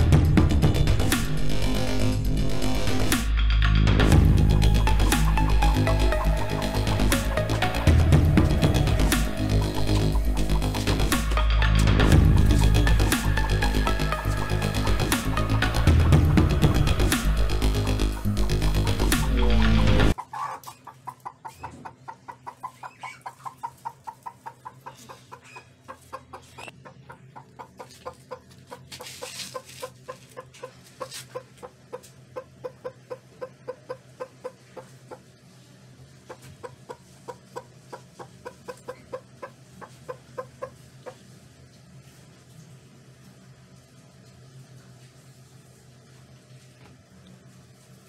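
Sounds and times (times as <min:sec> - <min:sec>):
hen clucking: 0:04.8 - 0:11.5, 0:12.3 - 0:35.4, 0:36.2 - 0:41.4.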